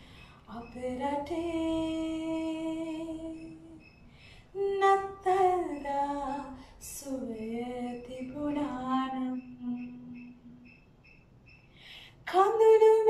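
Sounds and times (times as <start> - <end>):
short breath: 4.0 - 4.5, 11.7 - 12.2.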